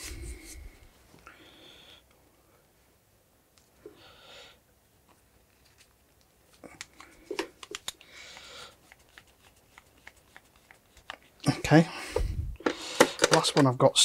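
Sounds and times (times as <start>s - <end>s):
short breaths: 8.0s - 8.8s, 11.8s - 13.3s.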